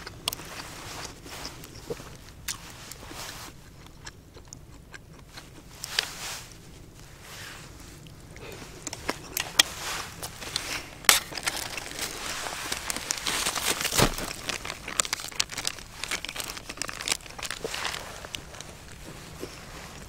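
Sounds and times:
wrappers crinkling: 7.7s - 20.0s.

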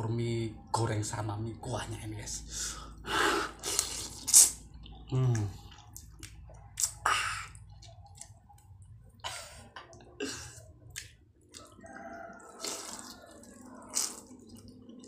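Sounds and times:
person slurping noodles: 3.1s - 4.6s, 12.5s - 14.4s.

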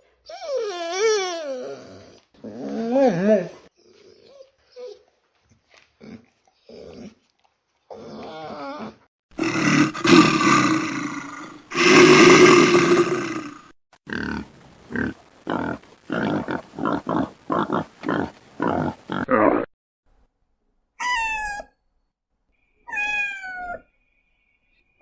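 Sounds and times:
tiger grunting roars: 9.4s - 14.4s
tiger roaring: 9.4s - 14.4s.

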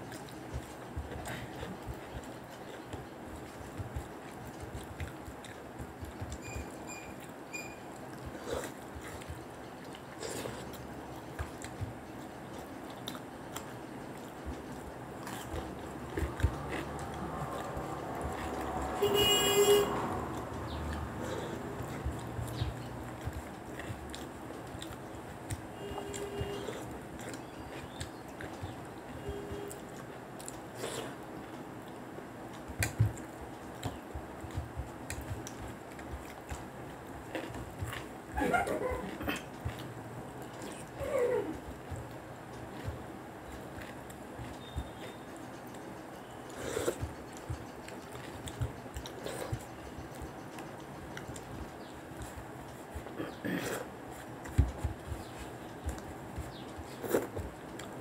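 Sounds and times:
fingers clicking on plates: 0.0s - 58.0s
people chewing: 0.0s - 58.0s
vehicle horn toot: 19.0s - 20.1s
lip smacks: 29.7s - 58.0s.

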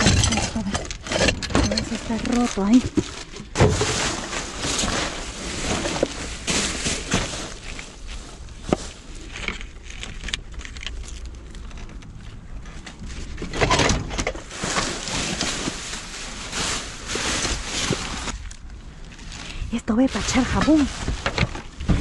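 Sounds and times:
plastic and packaging rustling: 0.0s - 22.0s
steady low rumble: 14.4s - 22.0s.

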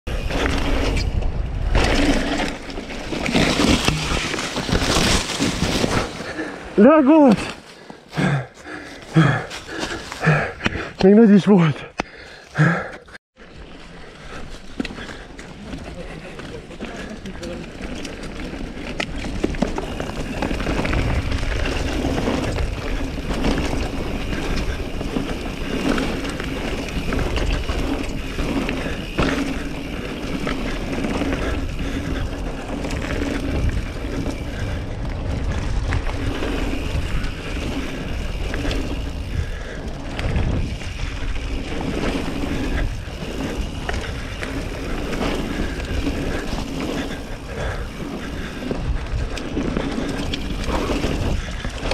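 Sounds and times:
wind buffeting microphone: 0.1s - 3.2s, 18.7s - 51.9s
bike tyres rumbling over dirt: 0.1s - 51.9s.

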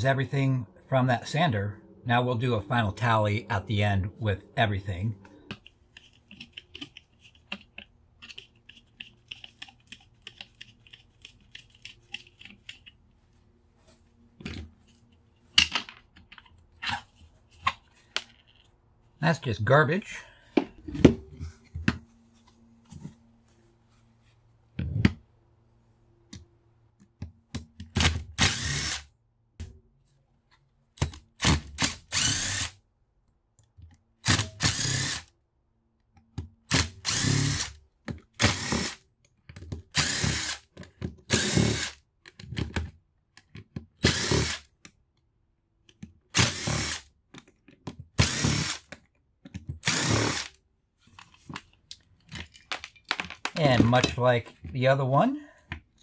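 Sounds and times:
power drill bursts: 28.4s - 29.1s, 31.4s - 32.8s, 34.2s - 35.3s, 36.7s - 37.8s, 38.4s - 39.0s, 40.0s - 40.6s, 41.3s - 42.0s, 44.0s - 44.6s, 46.3s - 47.0s, 48.2s - 48.9s, 49.8s - 50.5s.

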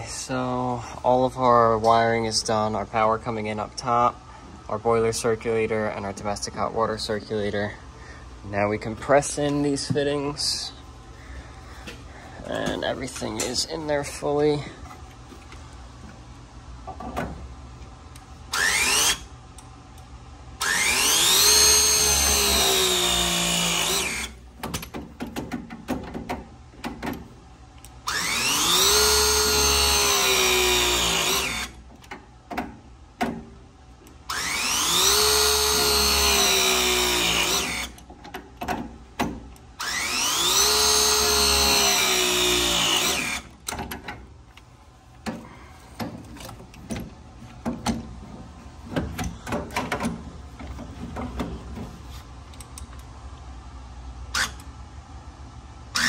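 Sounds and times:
press tool motor whining: 18.5s - 19.3s, 20.6s - 24.4s, 28.0s - 31.8s, 34.3s - 38.0s, 39.8s - 43.5s.

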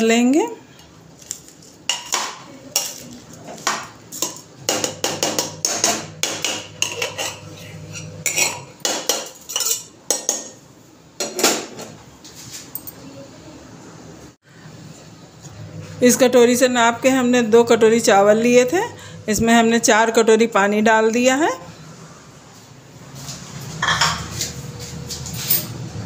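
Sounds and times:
spoon clinking against metal pot: 4.2s - 10.6s.

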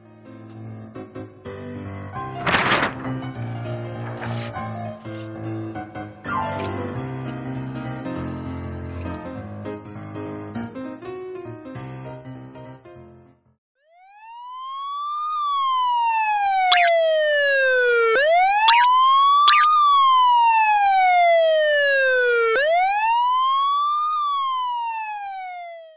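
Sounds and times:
siren wailing: 14.0s - 25.9s
brief high chirps: 16.7s - 16.9s, 18.7s - 18.9s, 19.5s - 19.7s.

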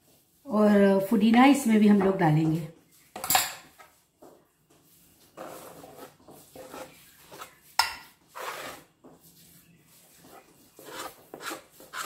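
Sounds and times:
herbs scraped off board: 5.4s - 8.9s.

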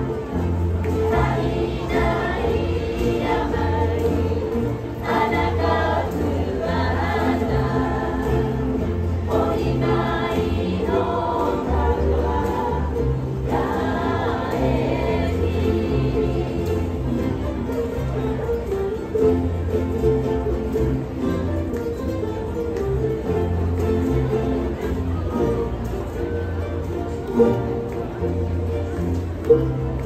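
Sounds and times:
ukulele ensemble strumming: 0.0s - 30.0s
group singing in chorus: 0.2s - 17.6s.

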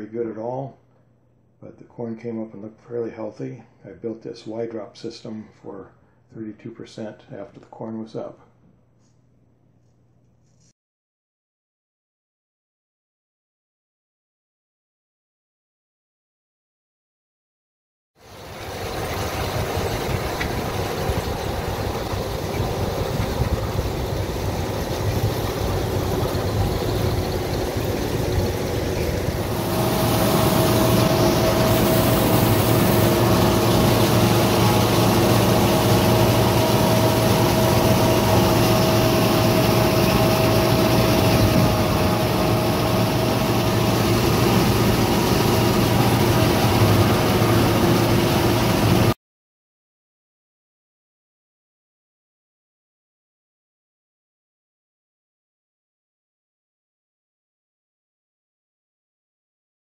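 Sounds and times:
combine harvester drone: 18.2s - 49.2s
steady machine whine: 18.2s - 49.2s.

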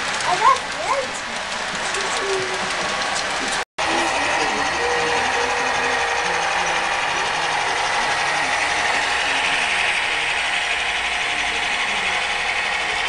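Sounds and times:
model train motors whirring: 0.0s - 13.0s.

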